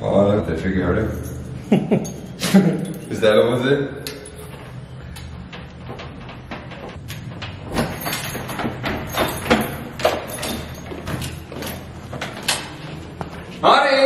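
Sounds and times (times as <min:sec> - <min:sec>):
keys jangling: 0:01.0 - 0:13.2
wooden door opening: 0:04.4 - 0:13.4.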